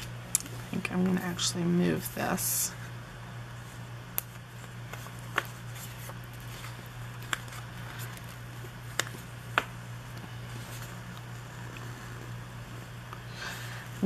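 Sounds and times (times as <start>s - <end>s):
steady low hum: 0.0s - 14.0s
paper and stickers clicking: 4.2s - 11.9s.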